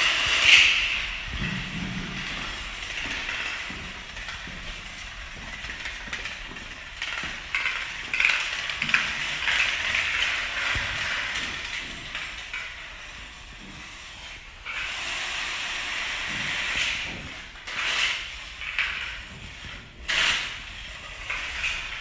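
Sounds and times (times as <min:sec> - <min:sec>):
plastic dominoes clattering on tile: 0:05.6 - 0:13.1.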